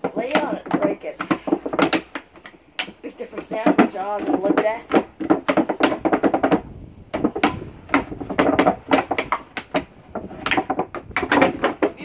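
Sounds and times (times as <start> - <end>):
plastic bucket knocking on wood: 0.0 - 12.0.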